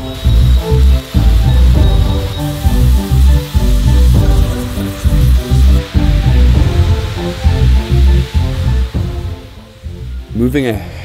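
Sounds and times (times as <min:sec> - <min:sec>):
music with heavy pulsing bass: 0:00.0 - 0:11.0.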